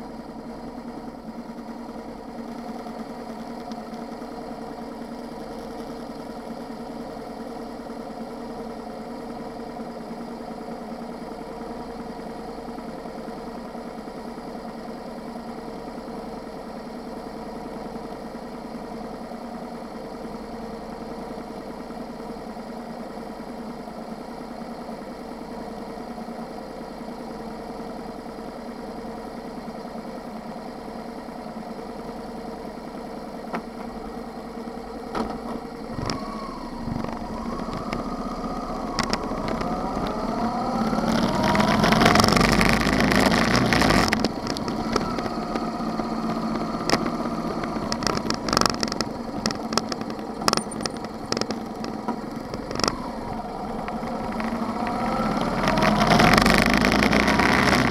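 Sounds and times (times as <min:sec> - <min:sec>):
motorcycle engine: 0:33.4 - 0:57.9
sharp clicks: 0:38.9 - 0:45.6, 0:46.2 - 0:53.1.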